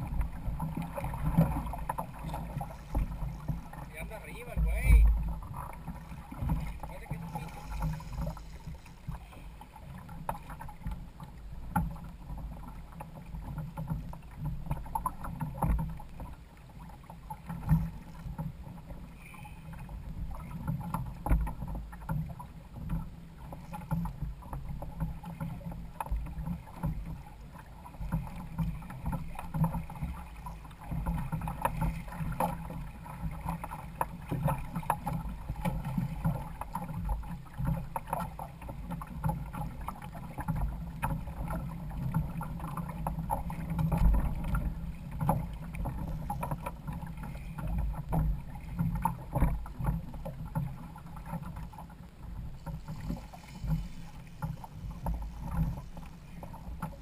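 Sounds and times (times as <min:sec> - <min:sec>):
low rumble: 0:00.0 - 0:10.0
water splashing against hull: 0:00.0 - 0:57.0.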